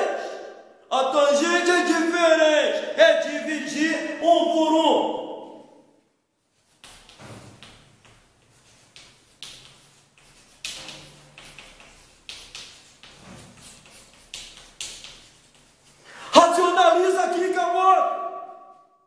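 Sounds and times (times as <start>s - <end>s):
chalk tapping and scratching: 6.4s - 17.6s.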